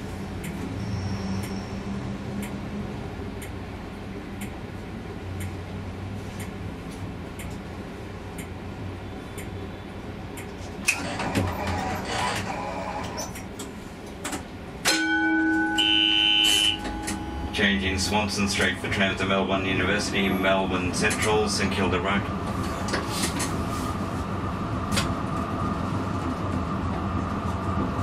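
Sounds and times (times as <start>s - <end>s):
tram running: 0.0s - 28.0s
steady electronic tone: 15.1s - 18.3s.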